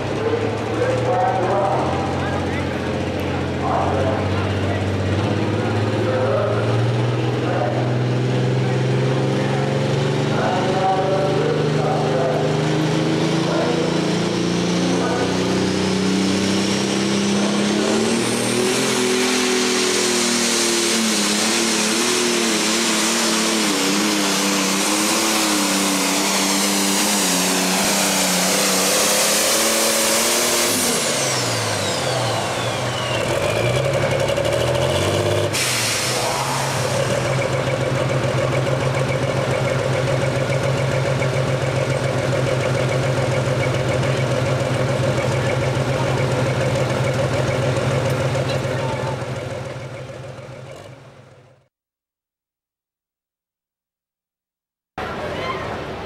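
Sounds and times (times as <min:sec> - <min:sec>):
diesel engine running: 0:00.0 - 0:51.7
loud hiss: 0:35.6 - 0:37.1.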